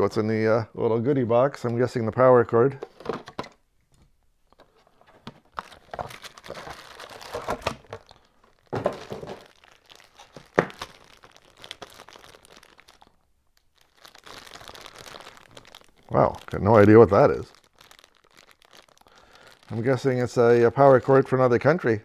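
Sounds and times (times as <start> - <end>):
plastic bag crinkling: 5.0 - 21.6.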